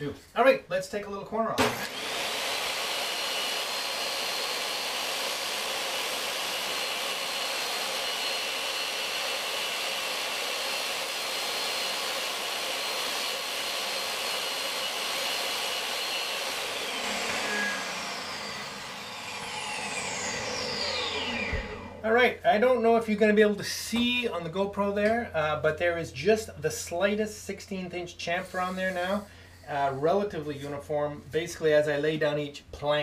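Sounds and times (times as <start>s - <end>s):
saw blade spinning down: 1.6s - 22.1s
table saw whining: 1.6s - 22.1s.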